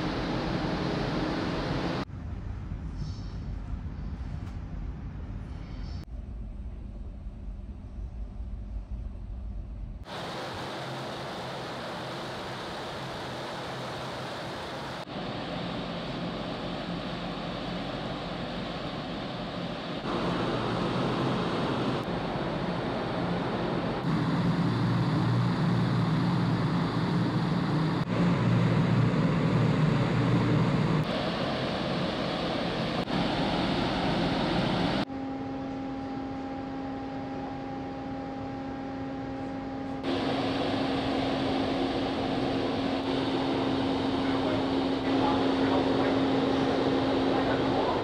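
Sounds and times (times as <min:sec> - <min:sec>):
ship engines humming: 0:00.0 - 0:02.1, 0:10.0 - 0:48.0
wind: 0:00.0 - 0:48.0
water noise: 0:10.0 - 0:35.1.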